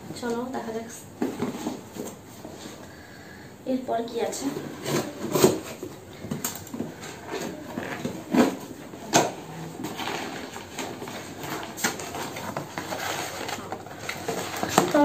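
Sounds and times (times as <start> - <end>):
cardboard and paper rustling: 1.2 - 2.9, 4.2 - 15.0.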